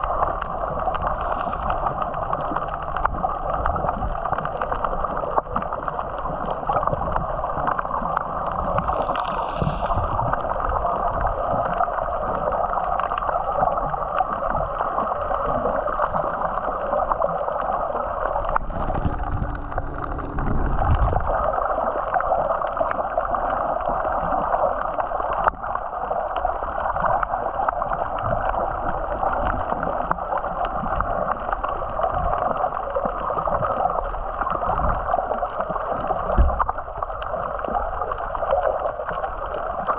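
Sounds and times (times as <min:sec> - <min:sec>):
low rumble: 0:00.0 - 0:12.1, 0:17.8 - 0:23.6
water rushing along hull: 0:00.0 - 0:39.9.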